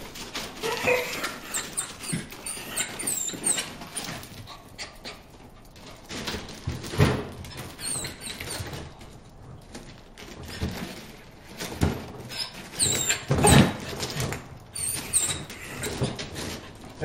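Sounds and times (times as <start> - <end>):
dog whimpering: 0.6 - 5.1, 12.8 - 13.8.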